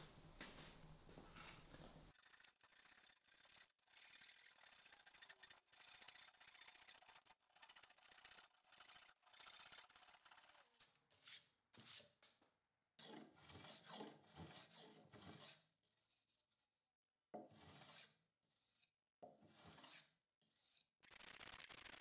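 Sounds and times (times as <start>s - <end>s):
hand tool scraping wood: 13.0s - 16.2s, 17.4s - 20.8s.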